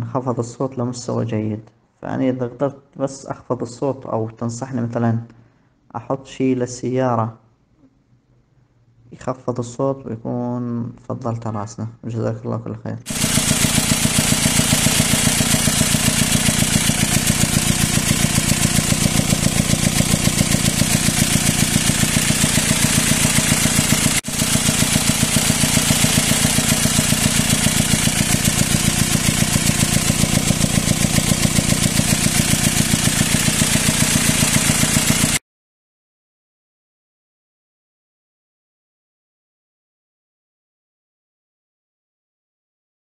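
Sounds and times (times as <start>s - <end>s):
diesel engine idling roughly: 13.1s - 35.4s.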